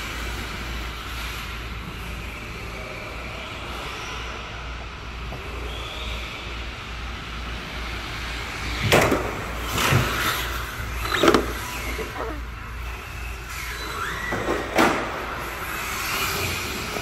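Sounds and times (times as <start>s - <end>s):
electric rc car motors: 0.0s - 17.0s.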